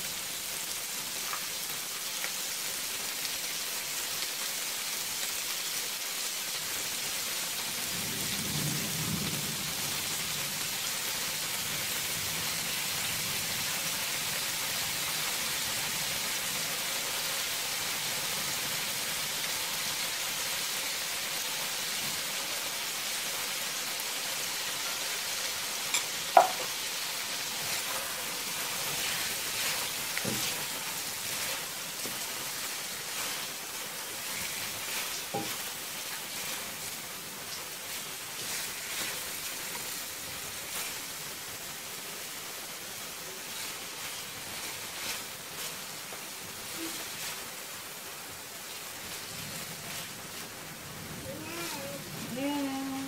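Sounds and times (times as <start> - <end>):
prawns sizzling in a wok: 0.0 - 53.0
spatula tapping wok: 25.9 - 26.8, 35.2 - 35.7.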